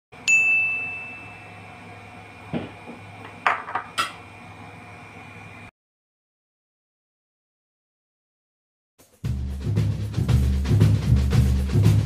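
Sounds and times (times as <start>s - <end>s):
high-pitched tone: 0.2s - 1.9s.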